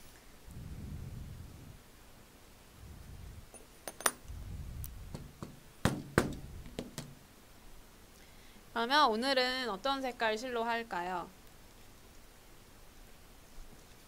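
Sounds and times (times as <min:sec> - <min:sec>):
metal tools knocking and clinking: 0:03.6 - 0:04.2
sharp knocks: 0:05.1 - 0:07.2.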